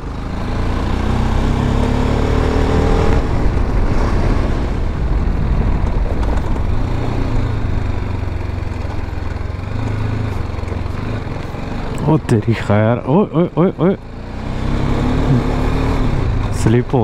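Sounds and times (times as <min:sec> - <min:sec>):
motorcycle engine accelerating: 0:00.0 - 0:17.0
wind and road noise: 0:00.0 - 0:17.0.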